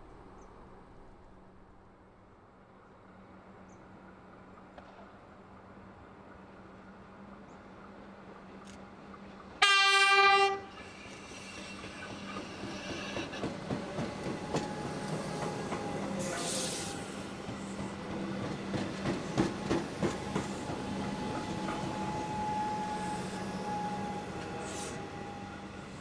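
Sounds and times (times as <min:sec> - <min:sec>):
train wheels clacking over rail joints: 0:11.5 - 0:22.0.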